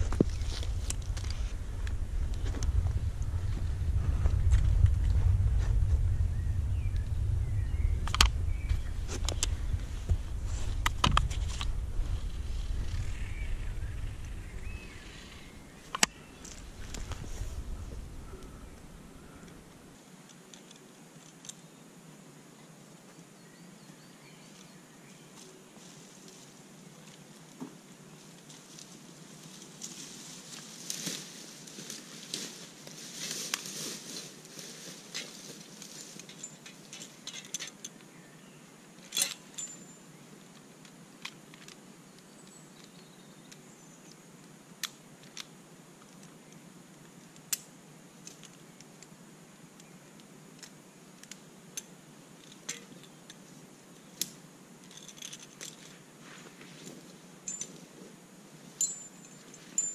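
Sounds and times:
rope rustling: 0:00.0 - 0:19.8, 0:29.5 - 0:37.7
metal carabiners clicking: 0:36.2 - 0:38.0, 0:39.0 - 0:40.0, 0:54.2 - 0:55.9, 0:57.5 - 0:57.8, 0:58.8 - 0:59.9.

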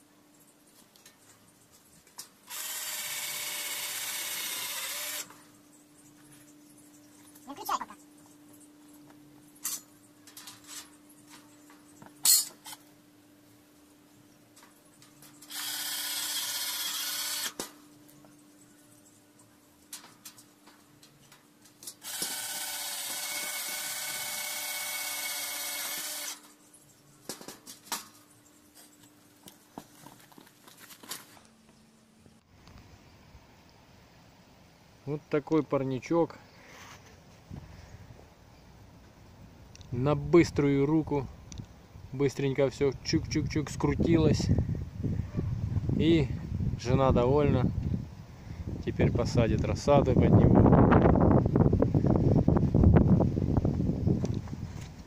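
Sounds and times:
cordless drill running: 0:02.5 - 0:05.3, 0:15.5 - 0:17.6, 0:22.0 - 0:26.4.

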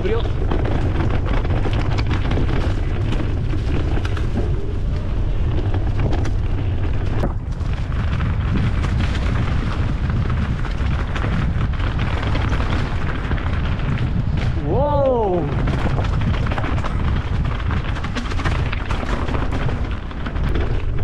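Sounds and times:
bike rattling: 0:00.0 - 0:21.0
wind rumble on camera: 0:00.0 - 0:21.0.

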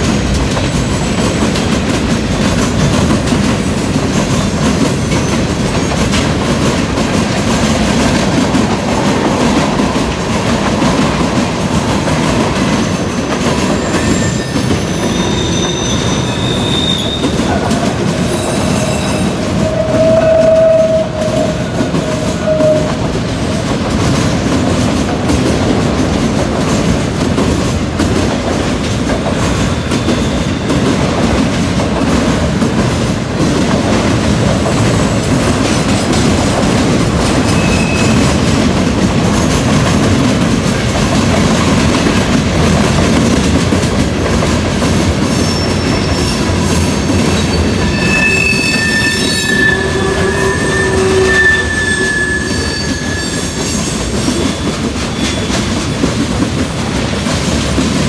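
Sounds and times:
train wheels rumbling on rails: 0:00.0 - 0:58.0
train wheel squeals: 0:00.6 - 0:01.8, 0:12.7 - 0:23.1, 0:29.5 - 0:31.0, 0:37.3 - 0:38.6, 0:45.1 - 0:56.2.

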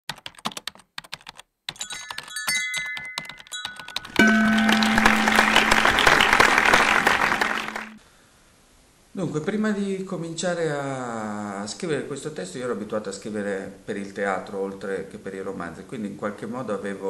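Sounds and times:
typing-like clicks: 0:00.1 - 0:04.2
short chiming tones: 0:01.8 - 0:07.0.

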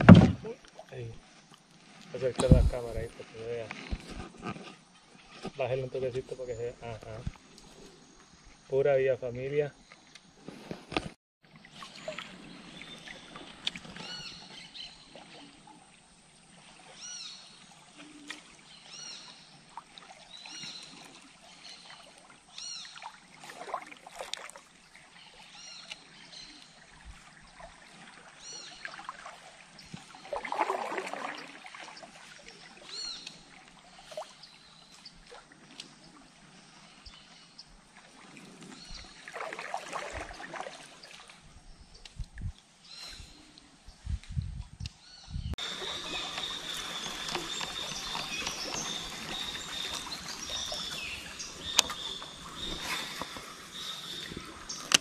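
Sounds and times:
faint water noise: 0:00.0 - 0:55.0
swishing splash: 0:30.1 - 0:32.6, 0:39.1 - 0:41.4
bird chirping: 0:45.0 - 0:55.0.

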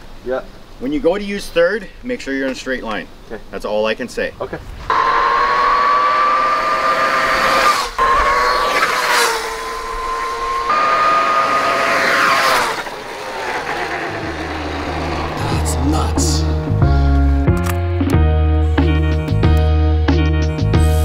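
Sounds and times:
electric motorbike motor whine: 0:04.9 - 0:16.7.

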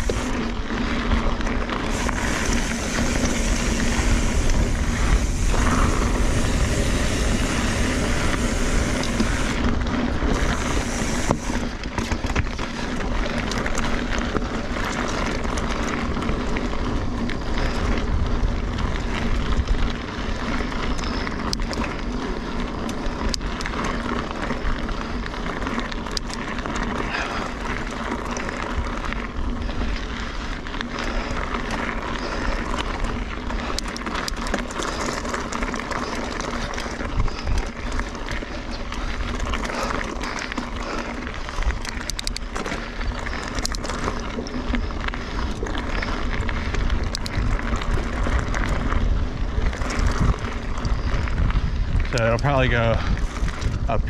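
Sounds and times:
bike clicks and rattles: 0:00.0 - 0:54.0
bike tyres crunching over gravel: 0:00.0 - 0:54.0
wind rumble on microphone: 0:00.0 - 0:54.0.

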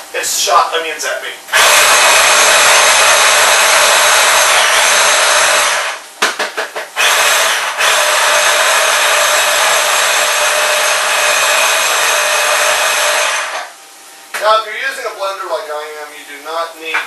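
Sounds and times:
blender motor chopping: 0:01.5 - 0:06.0, 0:07.0 - 0:13.7.

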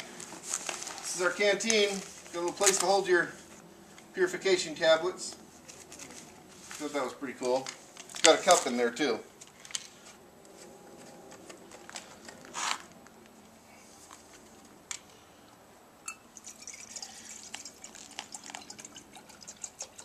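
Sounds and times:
water dripping: 0:16.1 - 0:20.0
water pouring into pot: 0:16.4 - 0:20.0.

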